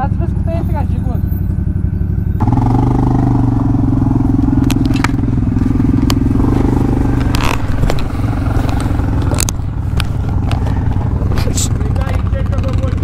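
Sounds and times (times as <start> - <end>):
atv engine running: 0.0 - 13.0
sharp clicks and scrapes: 6.0 - 11.8.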